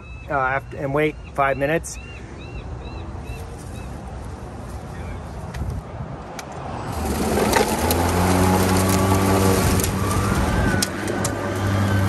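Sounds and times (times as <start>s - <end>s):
electric lawn mower motor humming: 6.9s - 12.0s.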